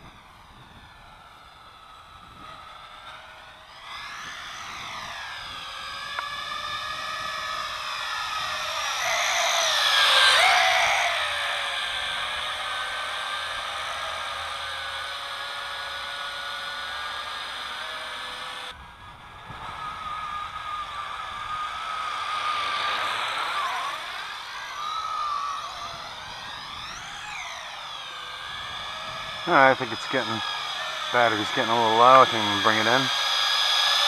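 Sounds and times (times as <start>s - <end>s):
drone propellers buzzing: 0.0s - 34.0s.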